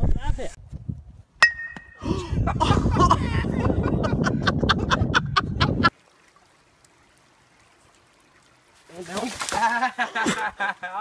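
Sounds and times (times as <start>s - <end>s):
wind buffeting microphone: 0.0s - 1.3s, 2.0s - 5.9s.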